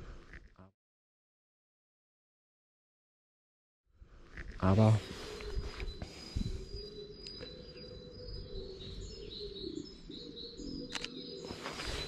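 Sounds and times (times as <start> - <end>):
outdoor background noise: 4.0 - 12.0
small birds chirping: 4.1 - 12.0
sharp click: 10.9 - 11.2.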